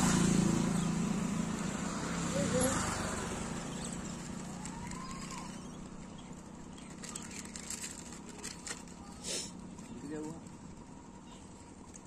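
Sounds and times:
vehicle passing on road: 0.0s - 12.0s
light crinkles and clicks: 6.8s - 9.2s.

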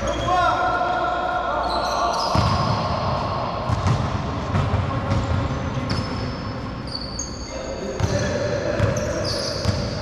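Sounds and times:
sneakers squeaking on court: 1.6s - 10.0s
ball bouncing: 3.7s - 6.1s.

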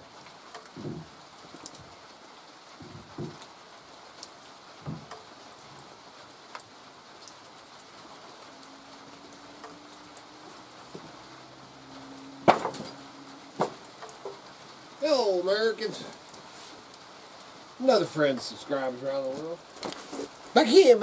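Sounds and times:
light rain falling: 0.0s - 21.0s
firewood knocking: 0.5s - 1.9s, 2.8s - 3.5s, 4.8s - 5.3s, 10.9s - 11.2s, 12.4s - 14.5s
drips ticking on surfaces: 2.8s - 14.9s.

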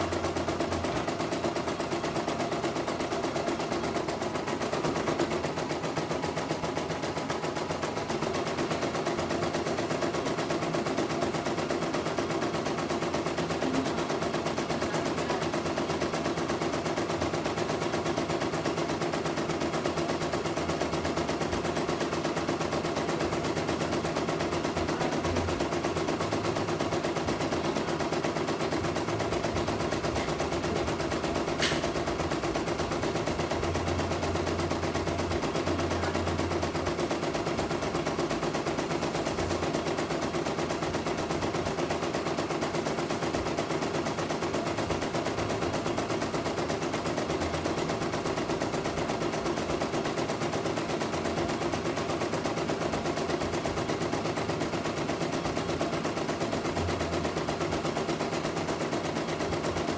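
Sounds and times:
sharp click: 31.6s - 32.0s.

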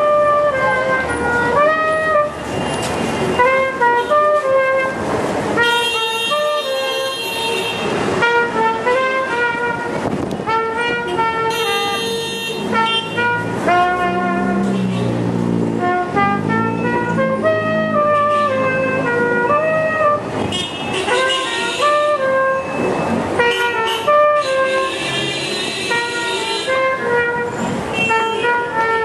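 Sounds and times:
trumpet melody: 0.0s - 2.6s, 3.3s - 22.8s, 23.4s - 29.0s
street traffic: 0.0s - 29.0s
car horns honking: 5.6s - 15.2s, 15.8s - 29.0s.

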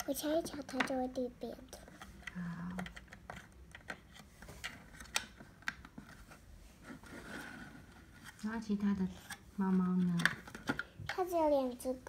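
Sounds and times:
plastic toy clicks and taps: 0.4s - 1.2s, 1.9s - 5.9s.

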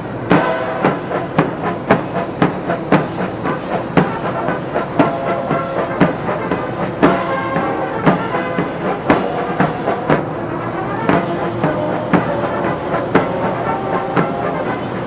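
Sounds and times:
bass drum and cymbal strikes: 0.0s - 15.0s
military brass band march: 0.0s - 15.0s.

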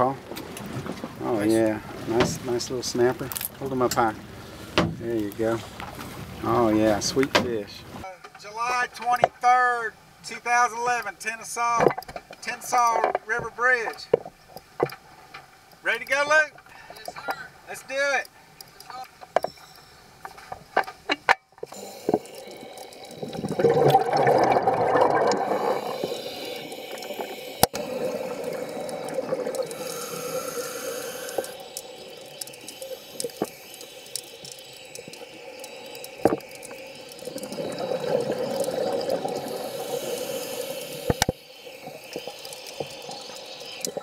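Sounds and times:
sharp clicks: 11.8s - 44.0s
regulator inhalation hiss: 21.6s - 44.0s
exhaled bubbles underwater: 21.7s - 44.0s.

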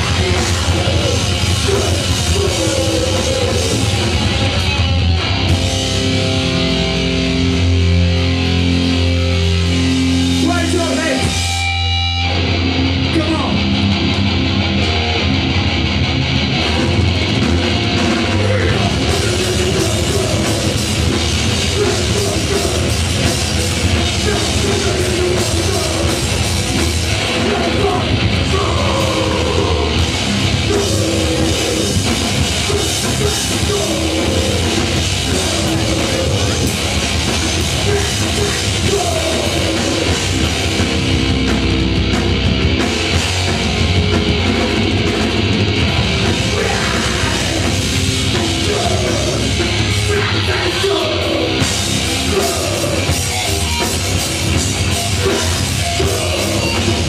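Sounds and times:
person singing: 0.0s - 4.0s, 27.3s - 36.8s, 37.6s - 40.4s, 46.3s - 53.5s, 54.9s - 57.0s
live heavy rock band: 0.0s - 57.0s.

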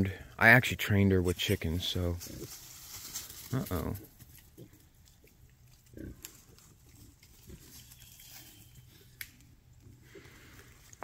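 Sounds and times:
pigs grunting softly: 3.4s - 7.9s.

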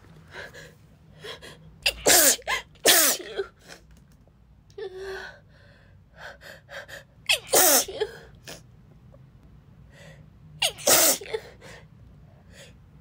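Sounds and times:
woman sneezing: 1.8s - 3.4s, 7.3s - 8.2s, 10.6s - 11.5s.

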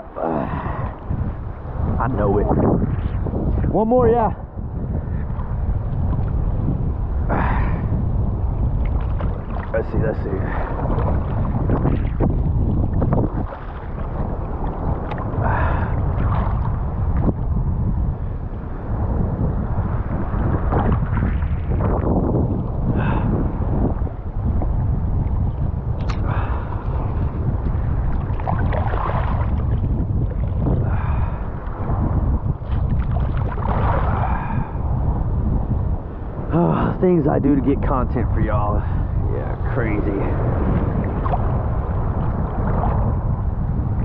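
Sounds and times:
wind buffeting microphone: 0.0s - 44.0s
surf water sloshing: 8.4s - 17.6s, 19.8s - 34.9s, 39.0s - 43.3s.

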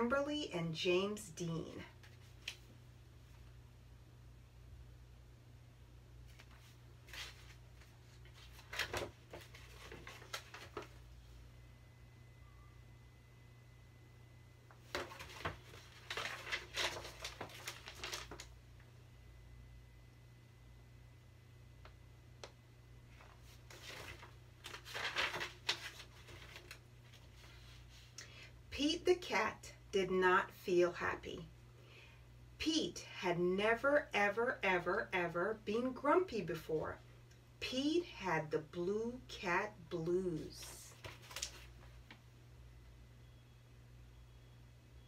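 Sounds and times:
low steady hum: 0.0s - 45.0s
book pages rustling: 6.3s - 11.1s, 14.8s - 18.5s, 23.1s - 28.2s, 40.9s - 42.2s.

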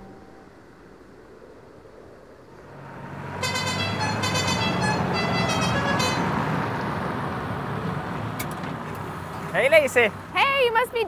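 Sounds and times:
wheel loader horn tooting: 3.4s - 6.7s.

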